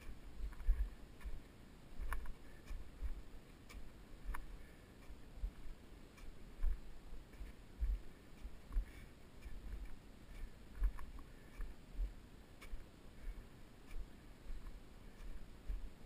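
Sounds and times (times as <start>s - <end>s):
faint ticks: 0.0s - 16.0s
footsteps in snow: 0.0s - 16.0s.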